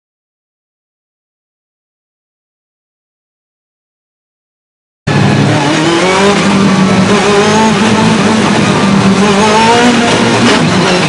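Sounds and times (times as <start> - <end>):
race car engine accelerating: 5.1 - 11.0.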